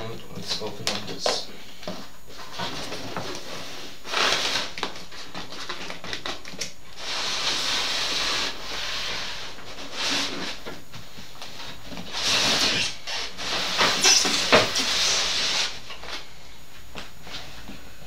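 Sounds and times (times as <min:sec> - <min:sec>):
foam and cardboard scraping: 0:02.4 - 0:05.8, 0:07.0 - 0:10.8, 0:11.5 - 0:16.0.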